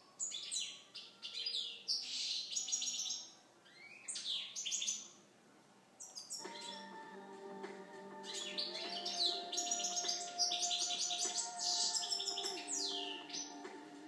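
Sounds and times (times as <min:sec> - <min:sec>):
goldfinch twittering and trilling: 0:08.2 - 0:13.7.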